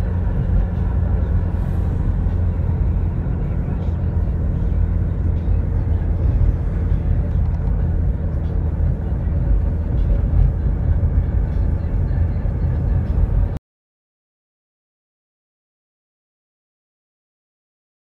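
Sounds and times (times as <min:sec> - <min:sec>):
car engine and tyre rumble: 0:00.0 - 0:13.6.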